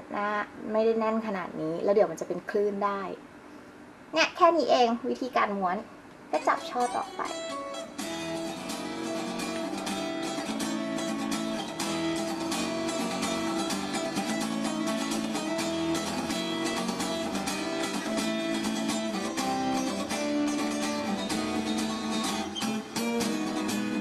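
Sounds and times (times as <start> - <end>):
acoustic guitar music: 6.4 - 24.0.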